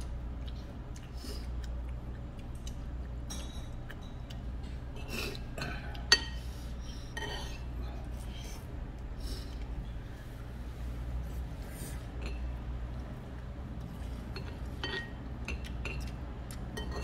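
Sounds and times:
metal spoon clinking on bowl: 14.4 - 16.1, 16.8 - 17.0.

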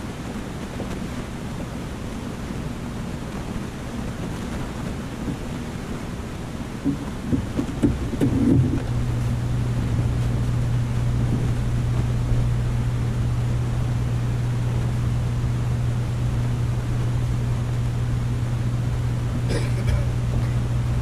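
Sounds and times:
aquarium pump hum: 5.0 - 21.0.

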